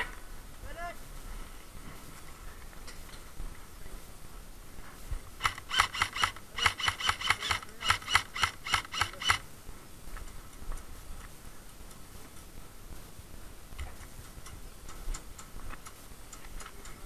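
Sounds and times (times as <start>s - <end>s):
airsoft rifle shots: 5.4s - 9.4s.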